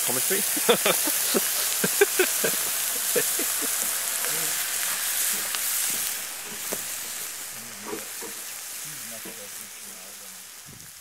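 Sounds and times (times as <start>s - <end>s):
sharp crackling pops: 0.0s - 9.9s
steaks sizzling on hotplate: 0.0s - 11.0s.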